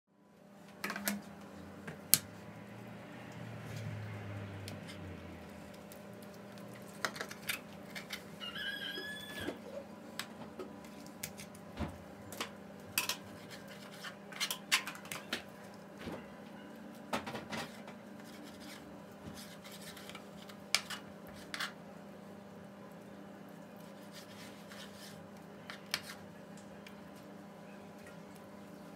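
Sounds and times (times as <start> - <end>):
knife rubbing through meat: 18.2 - 20.3, 23.7 - 26.2.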